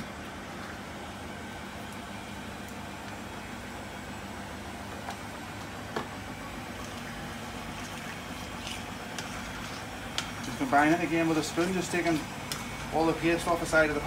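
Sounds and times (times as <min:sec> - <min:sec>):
spoon stirring thick sauce: 0:07.8 - 0:13.0.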